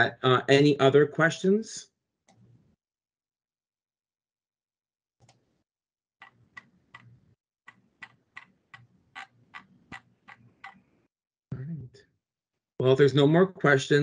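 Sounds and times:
faint keyboard typing: 0:06.2 - 0:10.9.

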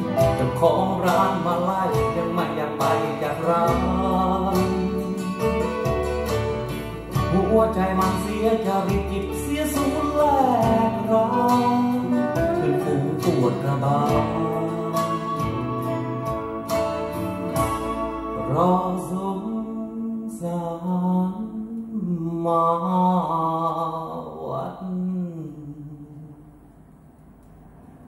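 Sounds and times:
guitar-led band music from a record: 0:00.0 - 0:19.6.

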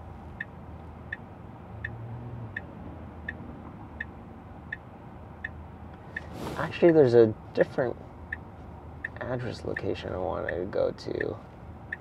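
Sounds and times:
turn signal ticking: 0:00.0 - 0:06.3, 0:07.6 - 0:12.0
low cabin hum: 0:02.5 - 0:12.0.

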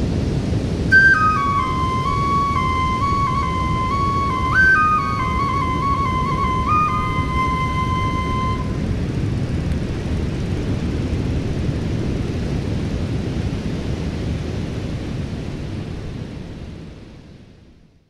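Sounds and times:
low rumbling noise: 0:00.0 - 0:17.7
held flute note: 0:00.9 - 0:09.0.

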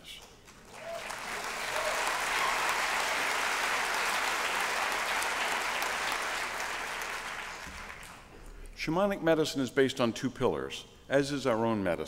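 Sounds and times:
large audience applauding: 0:00.4 - 0:08.4.

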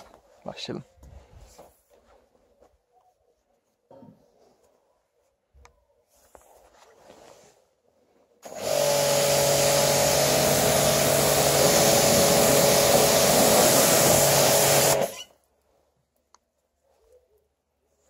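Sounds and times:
pressure washer humming: 0:08.4 - 0:15.3
pressure washer jet hissing: 0:08.4 - 0:15.3.

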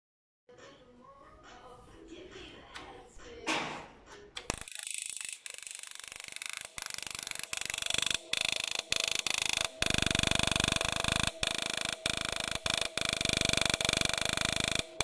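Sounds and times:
stylus hammering steel: 0:04.4 - 0:15.0
steady machine whine: 0:04.5 - 0:15.0.

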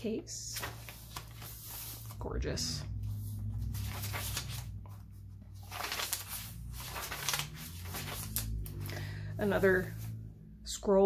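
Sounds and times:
paper pages rustling: 0:00.5 - 0:08.9.

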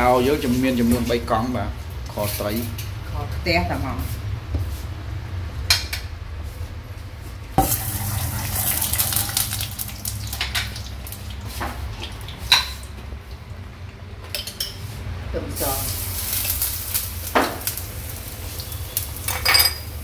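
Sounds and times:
utensils clinking against pots: 0:14.3 - 0:14.9, 0:18.9 - 0:20.0.

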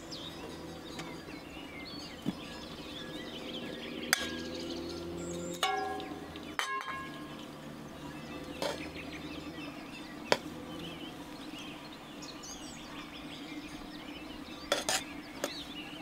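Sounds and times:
metal pot lid clinking: 0:05.6 - 0:07.2
metallic clank with ring: 0:05.6 - 0:07.2.

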